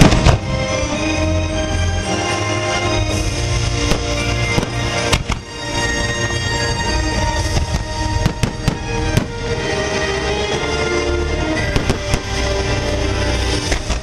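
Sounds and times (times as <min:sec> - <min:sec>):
firework shells bursting: 0:00.0 - 0:00.6, 0:03.6 - 0:09.6
music over loudspeakers: 0:00.0 - 0:14.0.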